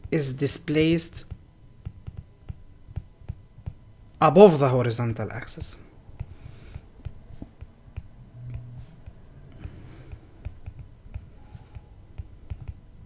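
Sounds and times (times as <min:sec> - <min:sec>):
stylus tapping on tablet screen: 0:00.8 - 0:03.8, 0:06.1 - 0:13.0.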